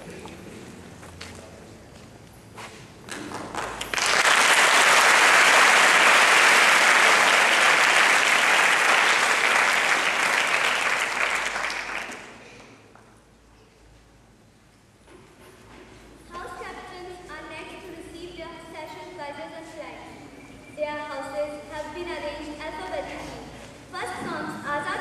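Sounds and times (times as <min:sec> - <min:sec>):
audience applauding: 0:03.1 - 0:12.8.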